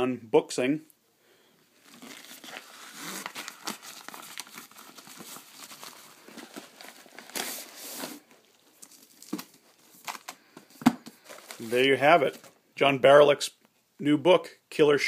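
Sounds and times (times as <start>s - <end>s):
paper mailer crinkling: 1.8s - 10.5s, 11.1s - 12.6s.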